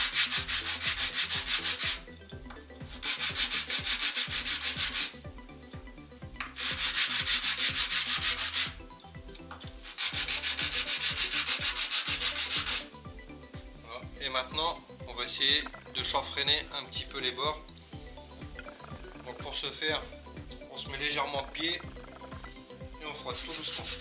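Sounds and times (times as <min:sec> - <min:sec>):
plastic rubbed on sandpaper: 0:00.0 - 0:02.0, 0:02.9 - 0:05.2, 0:06.6 - 0:08.8, 0:09.8 - 0:12.9, 0:23.1 - 0:24.0.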